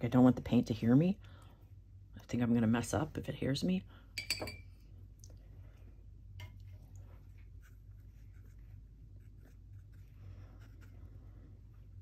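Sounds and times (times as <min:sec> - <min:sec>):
steady low hum: 0:00.0 - 0:12.0
paintbrush scratching on paper: 0:07.1 - 0:12.0.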